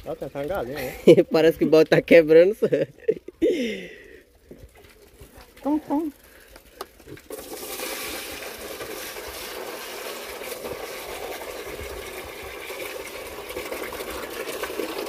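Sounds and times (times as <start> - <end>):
liquid pouring into trough: 6.2 - 15.0.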